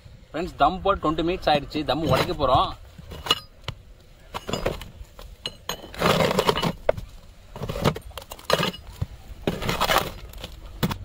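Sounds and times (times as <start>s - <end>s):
large pot scraping and clattering: 2.0s - 3.6s, 4.3s - 10.5s.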